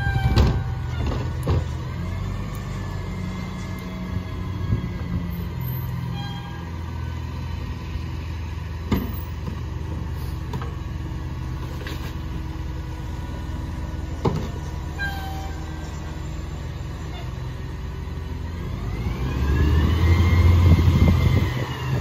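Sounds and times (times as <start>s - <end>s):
trash carts banging on hopper: 0.0s - 1.9s
garbage truck idling: 0.0s - 18.6s.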